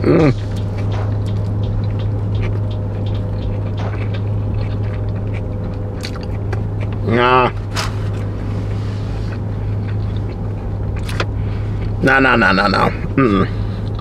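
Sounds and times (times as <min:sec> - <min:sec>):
people chewing: 0:00.0 - 0:12.0
car cabin hum: 0:00.0 - 0:14.0.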